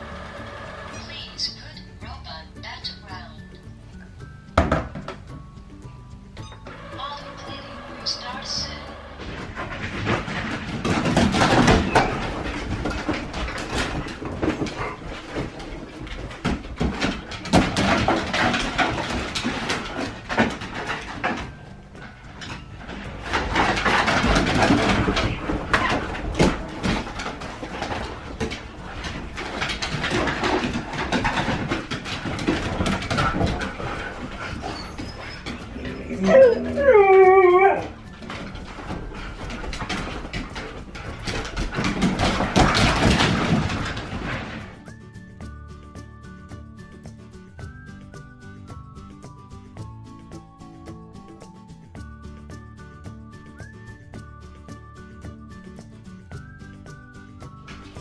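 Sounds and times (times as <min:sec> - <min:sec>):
sharp clicks and rattles: 0:06.6 - 0:36.1, 0:37.9 - 0:45.1
dog claws scrabbling on floorboards: 0:09.2 - 0:45.1
dog whining howls: 0:34.5 - 0:38.1.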